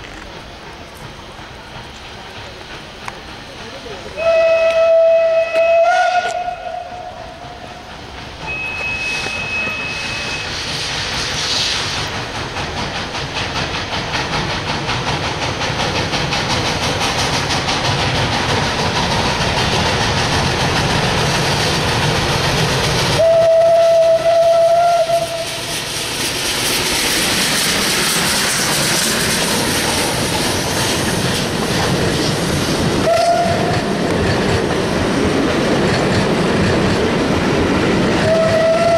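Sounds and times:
locomotive exhaust chuffing: 0:00.0 - 0:38.9
steam hissing: 0:00.0 - 0:38.9
train wheels clicking over rail joints: 0:00.0 - 0:38.9
steam whistle: 0:04.2 - 0:07.7, 0:08.4 - 0:10.7, 0:23.1 - 0:25.7, 0:33.0 - 0:33.8, 0:38.2 - 0:38.9.

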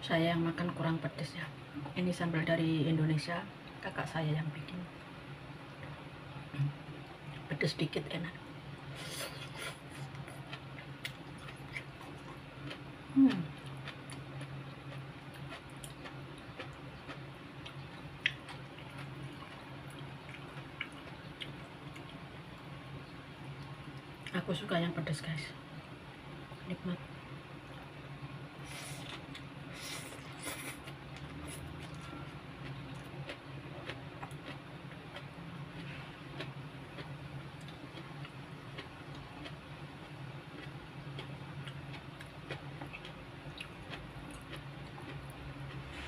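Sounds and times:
steady low hum: 0:00.0 - 0:46.0
chewing: 0:09.0 - 0:22.4, 0:28.7 - 0:39.6, 0:40.5 - 0:46.0.

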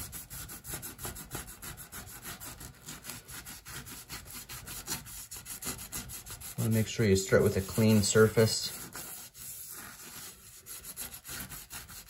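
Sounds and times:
sponge scrubbing a countertop: 0:00.0 - 0:12.0.

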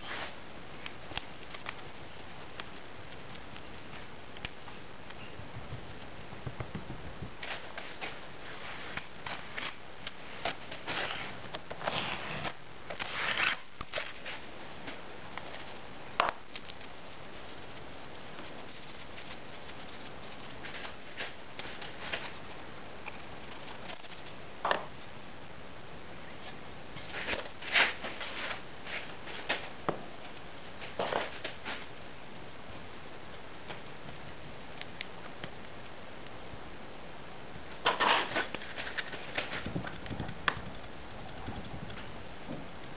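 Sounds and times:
rustles and soft taps: 0:00.2 - 0:13.1.

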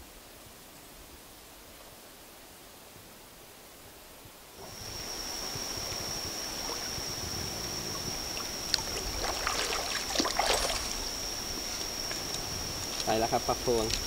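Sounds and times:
steady high-pitched whine: 0:04.4 - 0:14.0
fish splashing in water: 0:08.3 - 0:12.3.

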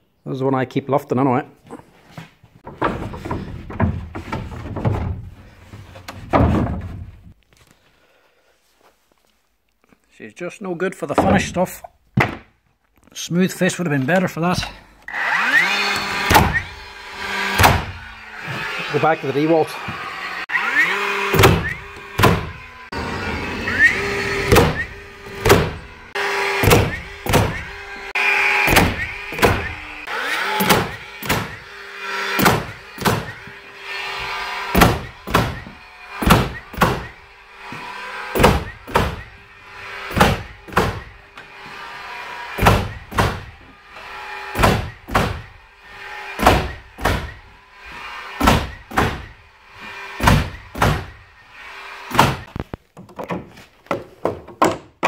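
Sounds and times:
nail gun firing: 0:15.5 - 0:16.8, 0:17.4 - 0:18.0, 0:21.3 - 0:22.6, 0:24.4 - 0:25.8, 0:26.6 - 0:27.8, 0:28.6 - 0:33.5, 0:34.7 - 0:37.2, 0:38.3 - 0:39.4, 0:40.1 - 0:41.2, 0:44.5 - 0:45.5, 0:46.4 - 0:47.4, 0:48.4 - 0:49.4, 0:50.2 - 0:51.2, 0:52.1 - 0:52.6.

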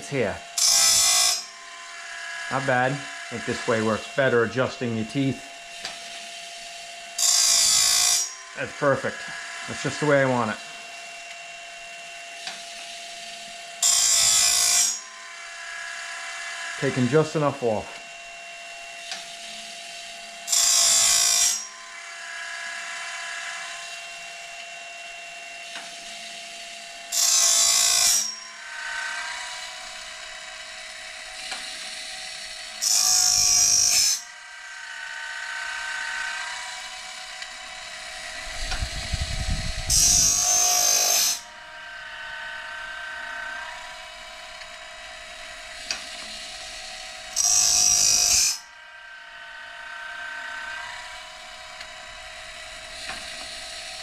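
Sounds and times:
grinding stone rasping on metal: 0:00.0 - 0:10.8, 0:12.4 - 0:17.8, 0:19.0 - 0:23.6, 0:27.1 - 0:44.1, 0:45.0 - 0:48.7
grinding motor humming: 0:34.8 - 0:47.0.

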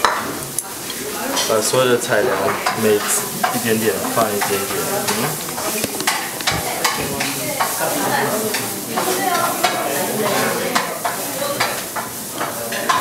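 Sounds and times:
sizzling hiss: 0:00.4 - 0:12.7
chopsticks tapping ceramic bowl: 0:02.3 - 0:07.8.

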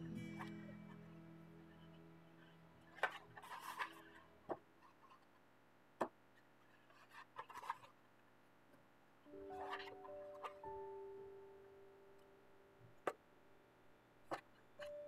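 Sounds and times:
paper rustles: 0:03.0 - 0:04.2, 0:06.7 - 0:07.9.

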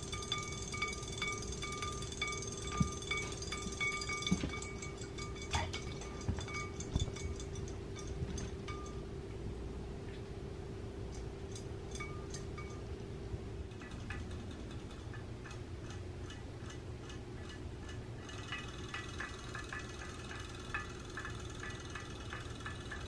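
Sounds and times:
toy fish motor humming and ticking: 0:00.0 - 0:09.0, 0:13.7 - 0:23.0.

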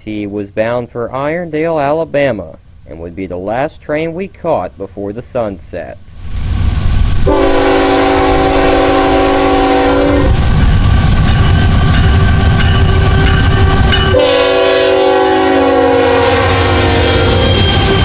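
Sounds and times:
train rumbling on rails: 0:06.1 - 0:18.0
locomotive air horn blasts: 0:07.3 - 0:10.4, 0:12.4 - 0:18.0.

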